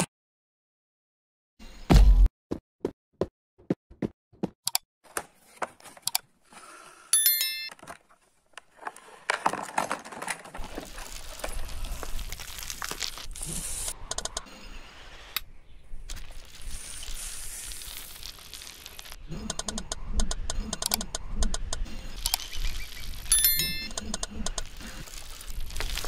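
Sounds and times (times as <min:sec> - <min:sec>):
sharp clicks and taps: 0:04.4 - 0:04.8, 0:19.4 - 0:22.4
bell-like ring: 0:07.2 - 0:07.7, 0:23.3 - 0:23.9
cardboard box crinkling: 0:07.9 - 0:13.4.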